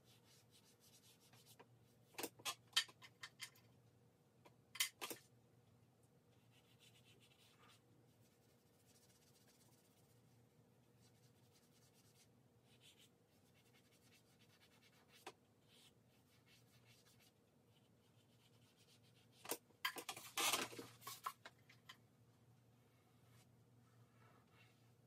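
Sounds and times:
charcoal scratching on paper: 0:06.5 - 0:10.1, 0:11.0 - 0:19.5.

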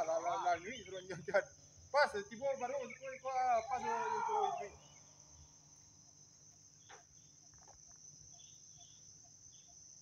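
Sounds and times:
insect chirring: 0:00.0 - 0:10.0
drawn-out voice call: 0:02.9 - 0:04.9.

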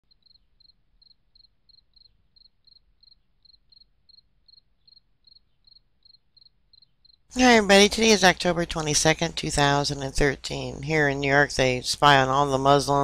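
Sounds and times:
faint insect chirping: 0:00.0 - 0:07.3.

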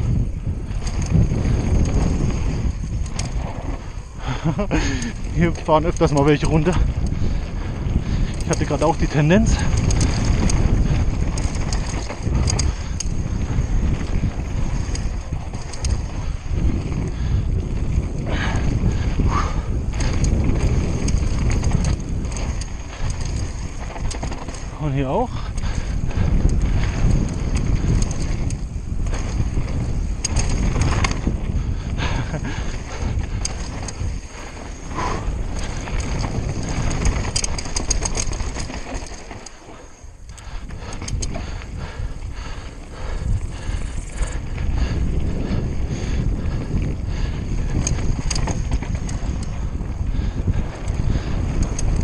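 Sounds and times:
bike rattling clicks: 0:00.0 - 0:52.0
tyres rumbling on rough ground: 0:00.0 - 0:52.0
wind buffeting microphone: 0:00.0 - 0:52.0
sharp clicks: 0:08.2 - 0:16.4, 0:19.9 - 0:24.7, 0:30.1 - 0:31.3, 0:32.9 - 0:41.8, 0:47.8 - 0:49.6.

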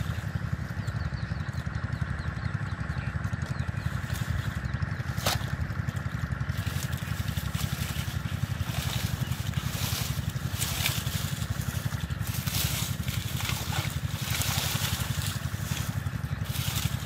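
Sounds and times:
leaves rustling: 0:00.0 - 0:00.7, 0:03.8 - 0:17.0
low pulsing engine drone: 0:00.0 - 0:17.0
water sloshing: 0:06.5 - 0:17.0.

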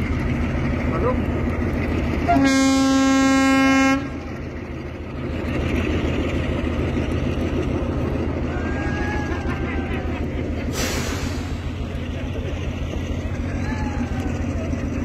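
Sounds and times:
locomotive engine rumbling: 0:00.0 - 0:15.0
diesel locomotive horn: 0:02.1 - 0:04.5.

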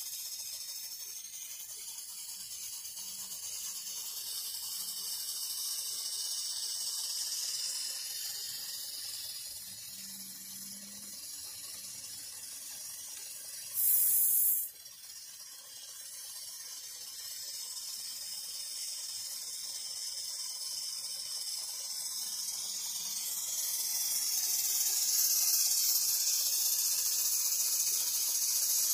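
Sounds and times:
steam engine hissing: 0:00.0 - 0:14.9, 0:17.1 - 0:28.9
sharp loud steam hiss: 0:13.7 - 0:14.7.

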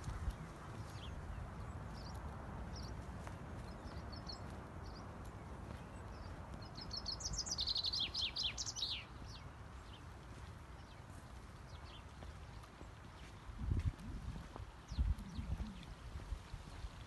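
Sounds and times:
low outdoor rumble: 0:00.0 - 0:17.0
small songbird chirping: 0:00.1 - 0:13.4.

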